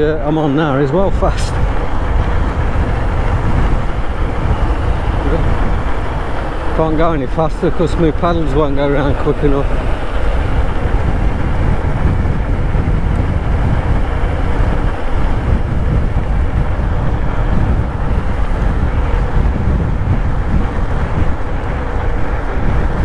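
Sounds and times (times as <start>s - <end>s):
wind buffeting microphone: 0.0s - 23.0s.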